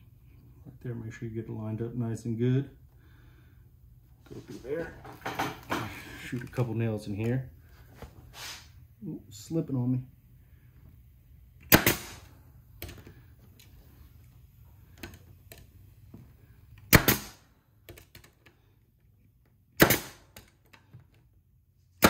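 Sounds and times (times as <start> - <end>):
brad nailer shots: 11.6 - 13.0, 16.8 - 17.5, 19.7 - 20.5.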